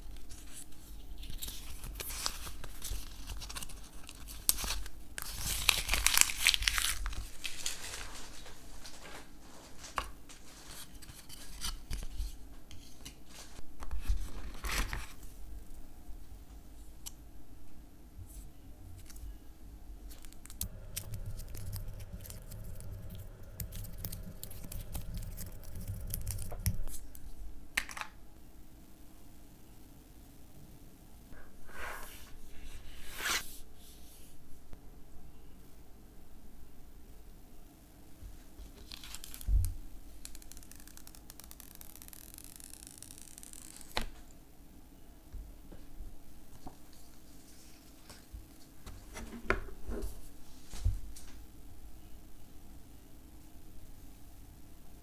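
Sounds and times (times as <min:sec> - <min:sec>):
protective film peeling: 0:20.1 - 0:27.2, 0:40.2 - 0:44.2.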